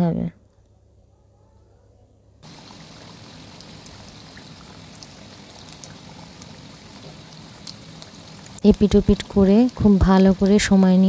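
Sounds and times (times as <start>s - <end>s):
oil sizzling with small pops: 2.4s - 11.0s.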